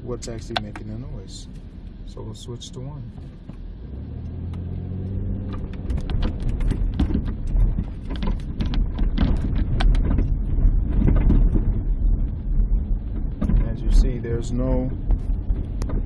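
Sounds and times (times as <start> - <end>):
low rumble: 0.0 - 16.0
sharp clicks and knocks: 0.2 - 1.1, 5.4 - 12.0, 13.1 - 14.1, 15.0 - 16.0.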